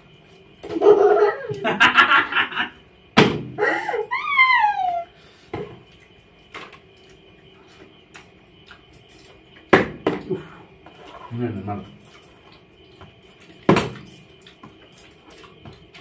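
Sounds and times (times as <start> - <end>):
person saying ooh: 4.1 - 5.1
plastic bottle thudding on tiles: 13.7 - 14.1.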